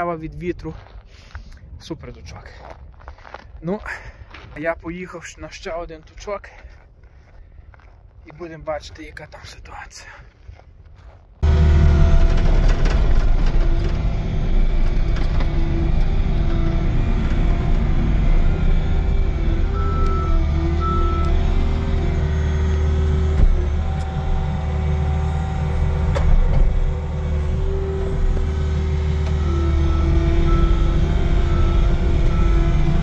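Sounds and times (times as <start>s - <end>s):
snow plough engine running: 11.4s - 33.0s.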